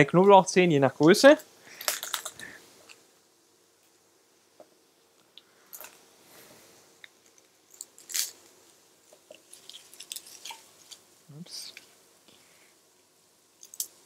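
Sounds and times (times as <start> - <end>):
garlic skins crackling: 7.2 - 11.9.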